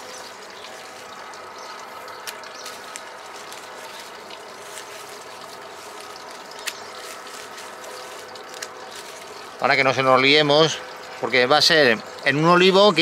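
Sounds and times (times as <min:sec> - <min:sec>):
leaves rustling: 0:00.0 - 0:11.4
steady background hum: 0:00.0 - 0:13.0
pruning shears clicking: 0:02.2 - 0:03.7, 0:05.9 - 0:09.4.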